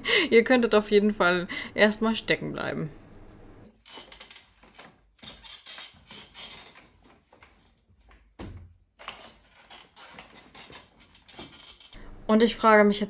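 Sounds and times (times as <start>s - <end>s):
wheelchair wheels clicking and rattling: 3.7s - 8.3s, 9.0s - 12.0s.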